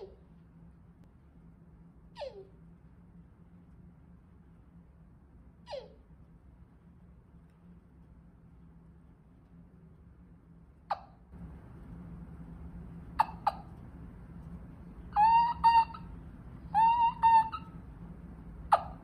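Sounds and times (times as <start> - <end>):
turkey call yelps: 2.2 - 2.5, 5.7 - 6.0, 10.9 - 11.2, 13.2 - 13.8, 15.1 - 16.1, 16.7 - 17.8, 18.7 - 19.0
turkey call clucks: 10.9 - 11.2, 13.2 - 13.8, 15.1 - 16.1, 16.7 - 17.8, 18.7 - 19.0.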